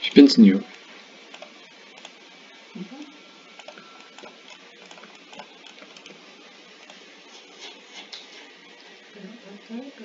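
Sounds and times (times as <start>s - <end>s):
steady background hiss: 0.0s - 10.0s
computer mouse clicks: 0.7s - 2.2s, 3.6s - 6.2s.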